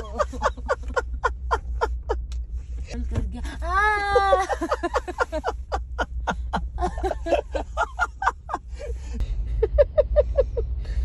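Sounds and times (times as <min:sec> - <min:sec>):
woman laughing hard: 0:00.0 - 0:02.2, 0:03.9 - 0:09.0
low rumble: 0:00.0 - 0:11.0.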